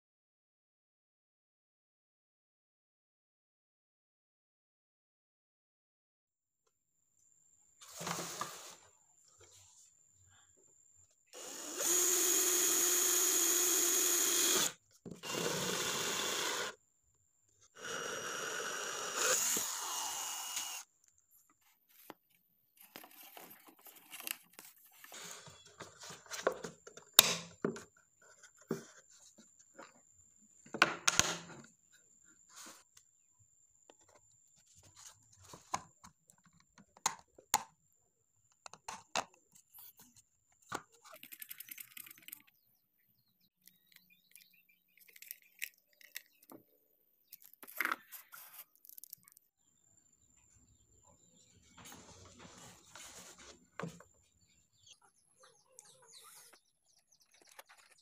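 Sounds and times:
cordless drill boring plastic pipe: 11.3s - 16.8s, 17.7s - 20.9s.

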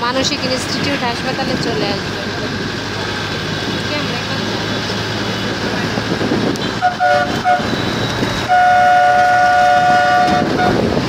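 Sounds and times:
vehicle rumbling in traffic: 0.0s - 11.0s
vehicle horn tooting: 6.7s - 10.9s.

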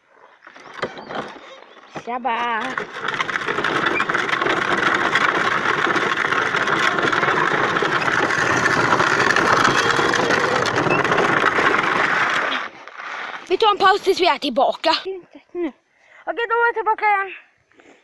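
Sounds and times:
toy vehicle wheels rattling on gravel: 0.4s - 14.4s.

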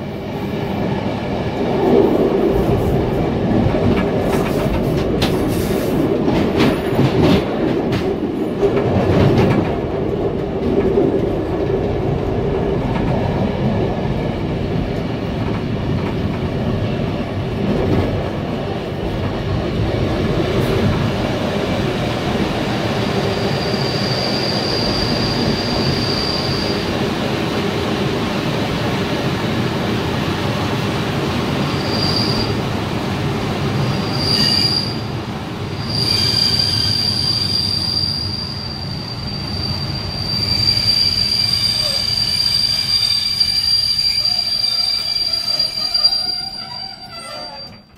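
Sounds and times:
train wheels clattering: 3.0s - 11.8s
high wheel squeal: 23.4s - 26.9s, 31.8s - 32.6s, 33.9s - 35.1s, 35.8s - 47.9s.

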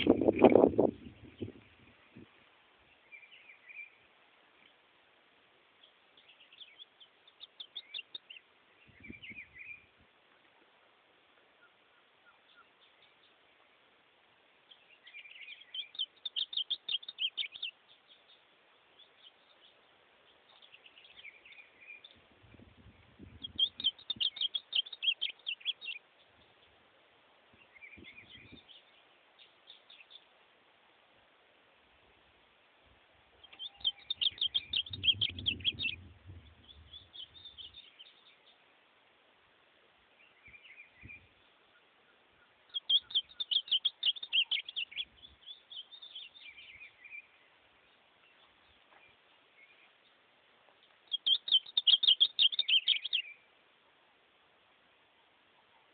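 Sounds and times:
bird singing quick repeated notes: 0.0s - 1.9s, 14.8s - 18.4s, 22.8s - 26.0s, 33.4s - 38.6s, 40.3s - 47.4s, 50.8s - 53.4s.

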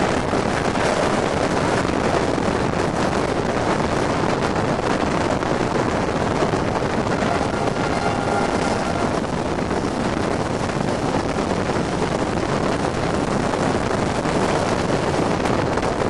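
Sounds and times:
train running noise: 0.0s - 16.0s
wind rushing over microphone: 0.0s - 16.0s
faint high whine: 6.9s - 9.6s.

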